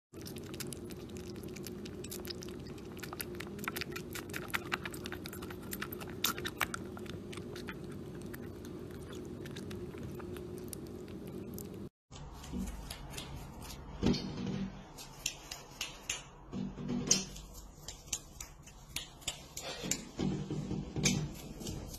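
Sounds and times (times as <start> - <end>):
kitten suckling wet clicks: 0.2 - 11.8.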